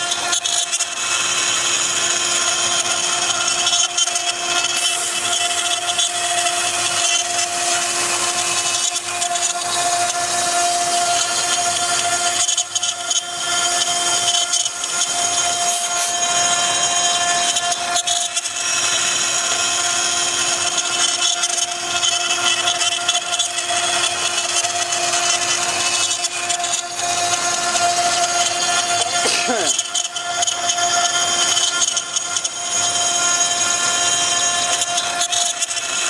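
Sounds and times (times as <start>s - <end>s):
bit rasping through wood: 0.0s - 36.0s
router spindle whine: 0.0s - 36.0s.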